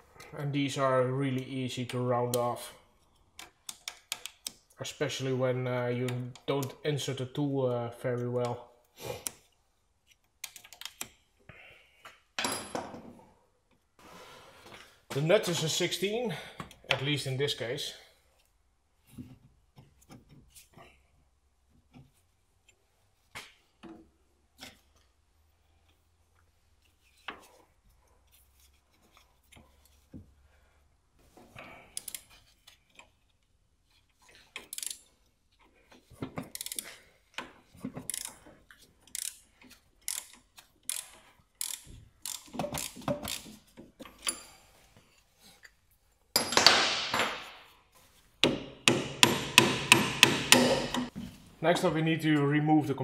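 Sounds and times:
ratchet clicking: 34.6 - 35.0, 36.5 - 36.8, 38.1 - 38.4, 39.1 - 39.4, 40.0 - 43.4.

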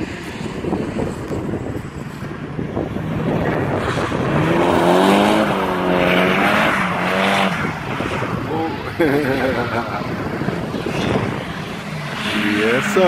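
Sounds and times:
car engine revving hard: 3.0 - 13.0.

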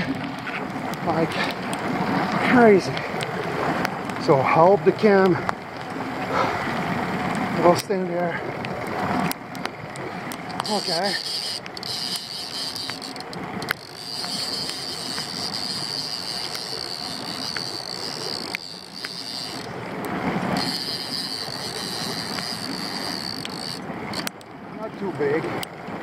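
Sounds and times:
outboard motor running: 0.0 - 26.0
wind: 0.0 - 26.0.

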